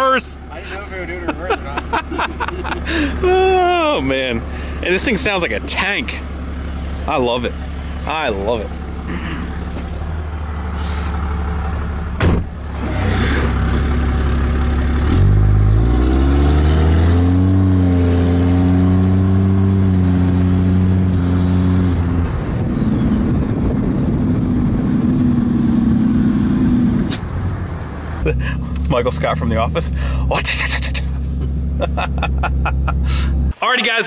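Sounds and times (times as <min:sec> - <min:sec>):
diesel pickup engine: 0:00.0 - 0:33.8
sharp knock: 0:12.2 - 0:12.5.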